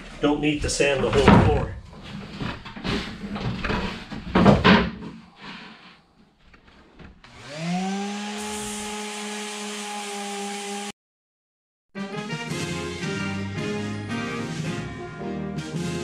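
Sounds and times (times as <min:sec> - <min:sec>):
wooden batten knocking and scraping: 0:00.6 - 0:05.6
sander whining: 0:07.2 - 0:10.9
sander hissing on fibreglass: 0:07.3 - 0:10.9.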